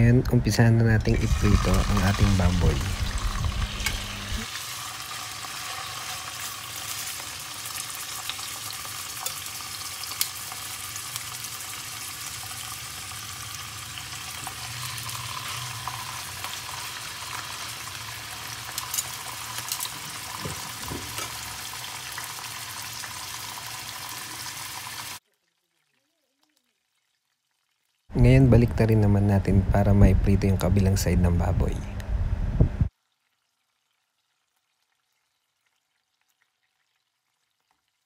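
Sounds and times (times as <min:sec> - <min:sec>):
meat sizzling in hot oil: 0:01.2 - 0:25.2.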